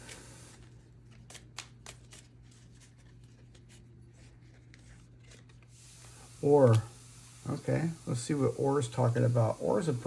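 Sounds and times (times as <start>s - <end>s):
cards being shuffled: 0.0s - 5.8s.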